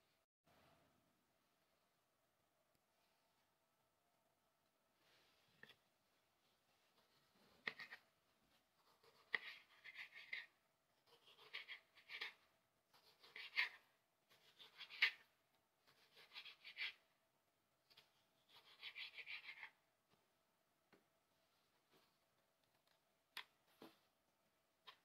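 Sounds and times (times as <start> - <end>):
knife sawing through tomato: 8.8 - 15.2, 15.8 - 17.0.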